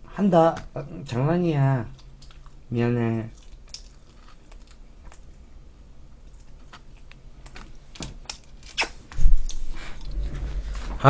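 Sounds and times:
person eating pizza: 0:01.8 - 0:05.4, 0:06.0 - 0:10.9.

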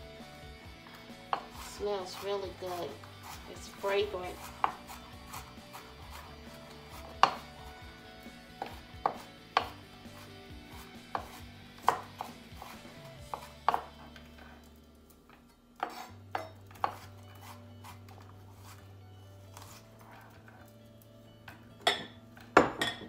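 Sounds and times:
knife chopping on cutting board: 0:00.9 - 0:07.8, 0:08.5 - 0:14.2, 0:15.8 - 0:18.8.

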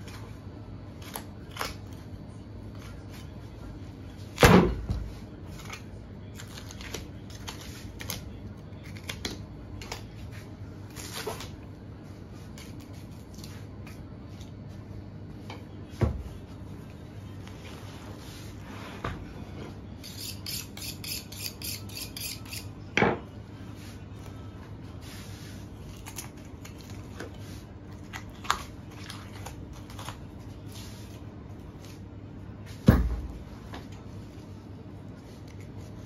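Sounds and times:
knife cutting and scraping bone: 0:20.0 - 0:22.8.

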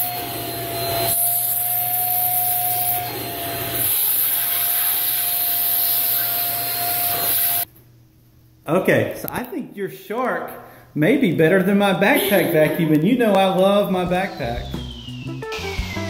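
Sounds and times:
vacuum cleaner running: 0:00.0 - 0:07.7, 0:13.6 - 0:16.0.

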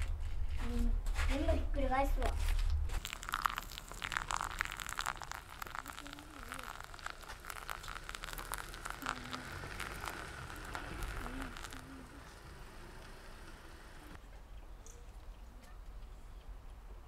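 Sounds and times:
water pouring onto coffee grounds: 0:03.0 - 0:14.0.

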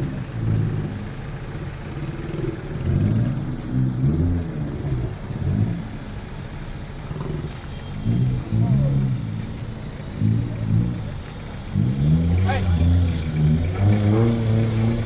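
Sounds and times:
off-road engine revving: 0:00.0 - 0:15.0.

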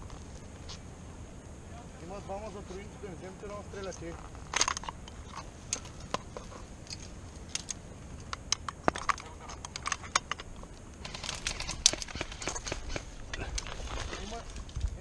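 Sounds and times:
dry leaves and twigs crackling: 0:00.0 - 0:15.0.

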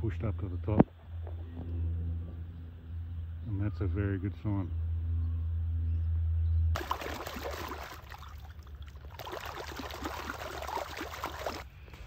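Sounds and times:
low steady rumble: 0:00.0 - 0:11.9
water splashing and sloshing: 0:06.8 - 0:11.7.

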